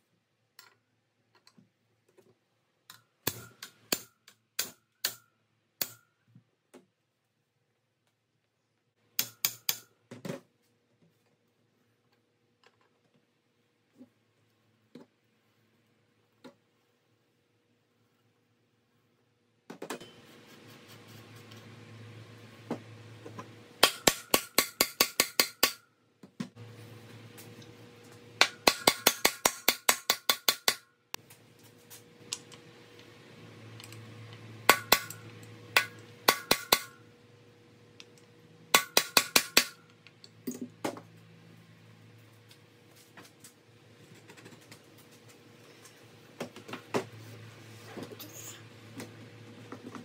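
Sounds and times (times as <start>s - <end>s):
hammer striking metal: 23.8s - 25.8s, 28.4s - 30.9s, 34.7s - 35.2s, 35.8s - 37.0s, 38.7s - 39.8s.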